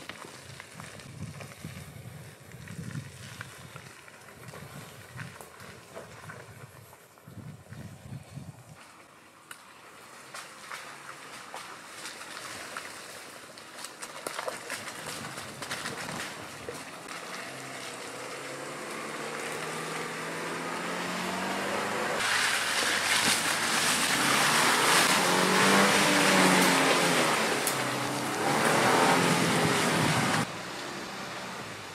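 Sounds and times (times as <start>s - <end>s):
tyres crunching over dirt: 0.0s - 30.5s
suv engine working: 16.7s - 31.9s.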